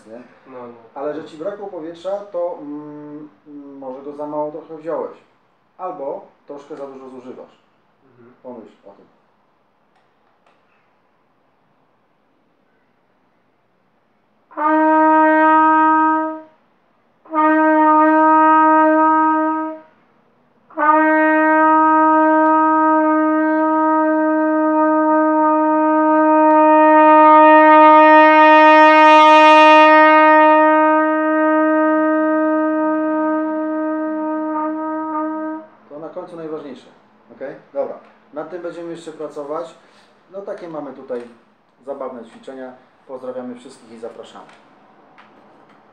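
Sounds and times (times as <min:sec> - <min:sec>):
trumpet holding long notes: 0:14.5 - 0:20.0, 0:20.7 - 0:36.6.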